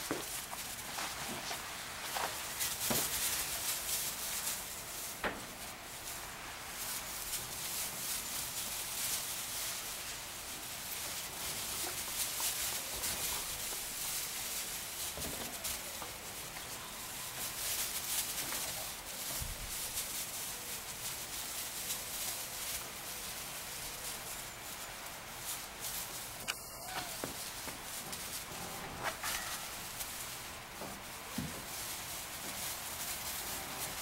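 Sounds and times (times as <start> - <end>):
lambs running on straw: 0.0 - 34.0
faint lamb bleat: 26.5 - 27.3.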